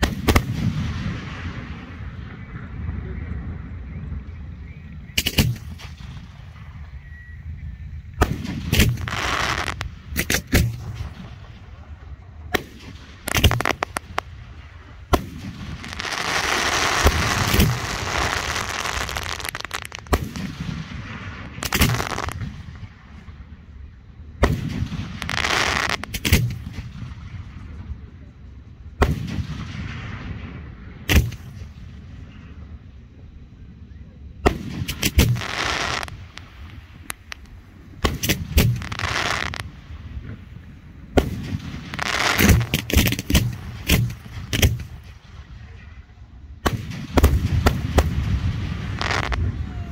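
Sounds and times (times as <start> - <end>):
firework crackling: 0.0 - 2.7, 8.0 - 23.6, 24.4 - 27.8, 34.5 - 45.8, 46.6 - 49.9
firework bangs: 0.0 - 2.9, 5.2 - 7.0, 8.1 - 23.5, 24.4 - 27.8, 29.0 - 32.4, 34.4 - 45.9, 46.6 - 49.9.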